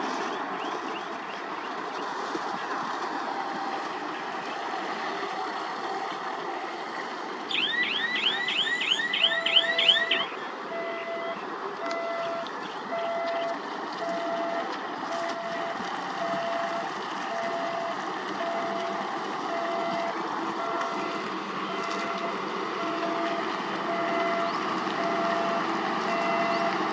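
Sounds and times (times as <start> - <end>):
reversing alarm beeping: 7.5 - 26.8
construction machinery running: 7.8 - 26.9.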